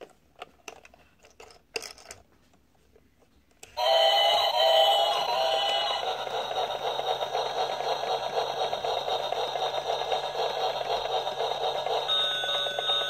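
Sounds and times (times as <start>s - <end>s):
toy electronic warble and chime: 3.8s - 13.0s.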